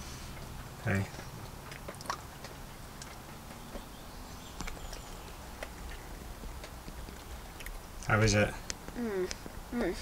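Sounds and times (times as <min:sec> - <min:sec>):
child eating mouth smacks: 0:01.2 - 0:03.9.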